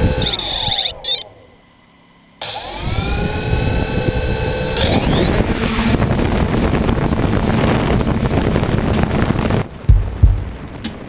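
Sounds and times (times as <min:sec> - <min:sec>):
drone propellers whining: 0:00.0 - 0:10.6.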